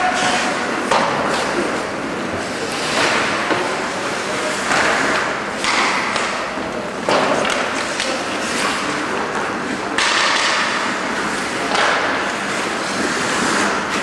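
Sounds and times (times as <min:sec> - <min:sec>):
skates and sticks hissing on ice: 0:00.0 - 0:05.7, 0:07.8 - 0:09.8, 0:10.6 - 0:14.0.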